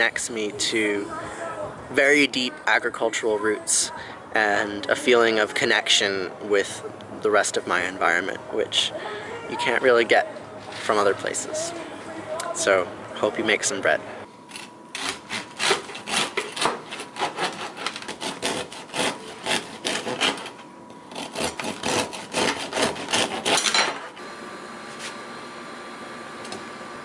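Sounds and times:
bread knife sawing through crust: 14.5s - 23.8s.

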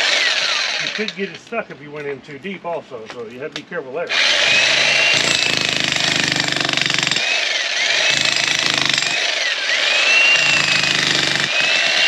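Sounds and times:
jackhammer hammering rock: 0.0s - 1.2s, 4.1s - 12.0s.

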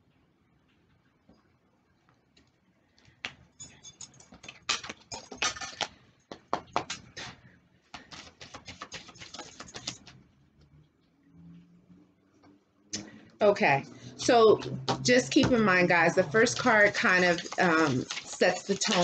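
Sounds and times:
cards being shuffled by hand: 4.3s - 10.2s, 15.1s - 19.0s.

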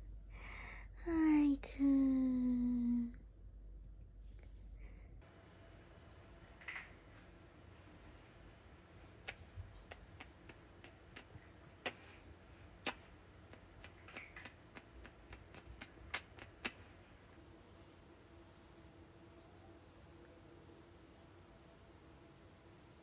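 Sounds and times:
light sharp clicks and taps: 12.8s - 16.9s.

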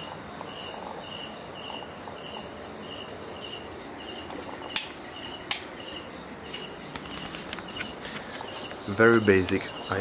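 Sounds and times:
insect chirping: 0.0s - 10.0s
sharp clicks: 4.7s - 5.7s.

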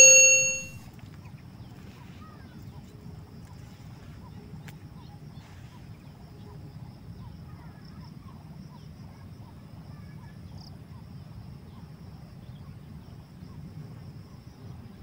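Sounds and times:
faint bird chirps: 0.0s - 0.7s.

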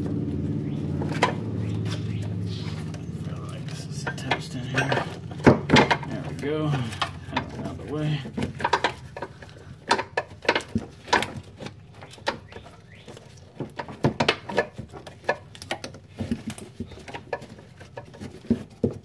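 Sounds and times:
hand tools clicking and knocking: 0.8s - 19.0s.

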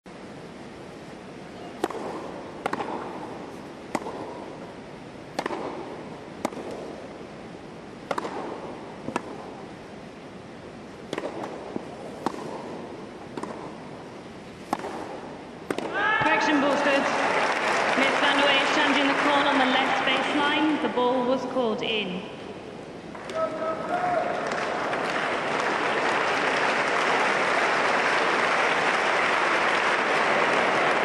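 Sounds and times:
stadium background noise: 0.0s - 31.0s
tennis ball pops off rackets: 1.8s - 4.7s, 5.3s - 7.1s, 8.0s - 9.6s, 11.0s - 13.8s, 14.6s - 16.0s.

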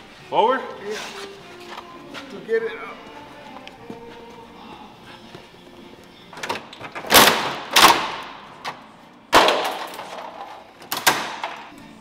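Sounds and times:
loud metal crashes with rattling: 9.4s - 10.5s.

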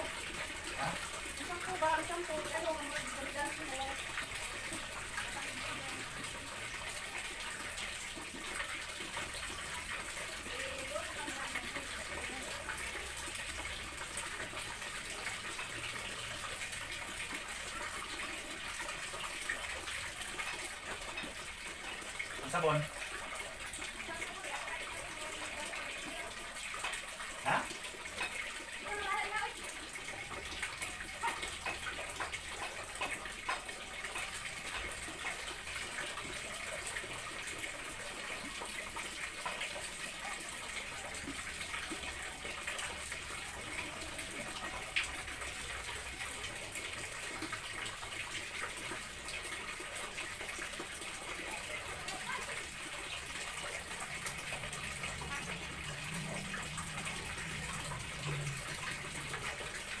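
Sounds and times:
water running from a tap: 0.0s - 60.0s.

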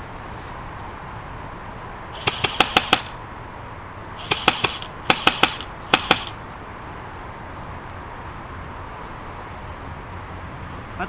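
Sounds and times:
airsoft gun bursts: 2.2s - 3.2s, 4.2s - 6.4s.

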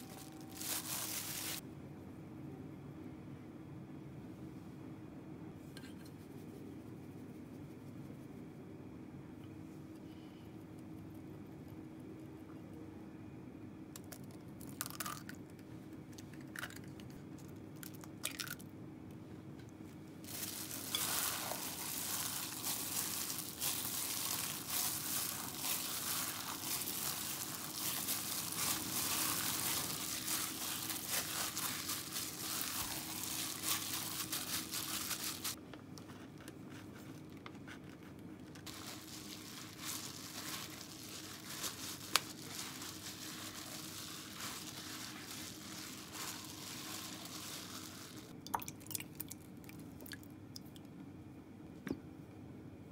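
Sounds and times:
plastic glove crinkling: 0.0s - 1.6s, 20.2s - 35.6s, 38.5s - 48.4s
wet squelching of kneaded meat: 20.2s - 35.6s, 38.6s - 50.2s.

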